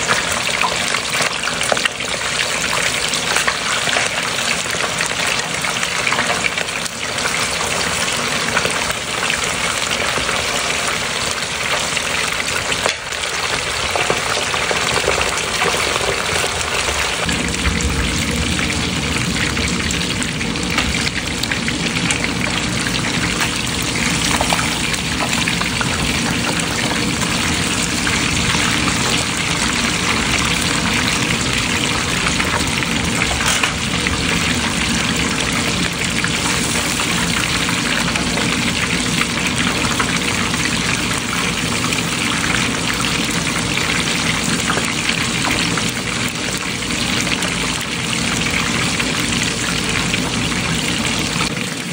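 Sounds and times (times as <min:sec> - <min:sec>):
fish sizzling in hot oil: 0:00.0 - 0:51.9.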